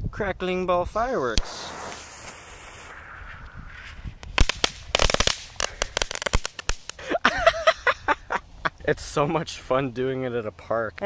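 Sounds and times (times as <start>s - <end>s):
fuse hiss: 1.2s - 7.2s
firework cracks and pops: 1.3s - 7.0s.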